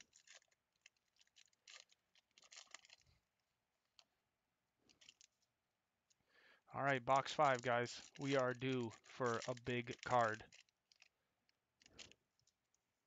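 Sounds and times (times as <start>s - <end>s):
foil wrapper crinkling: 0.0s - 3.1s, 4.9s - 5.4s, 6.9s - 11.2s, 11.8s - 12.6s.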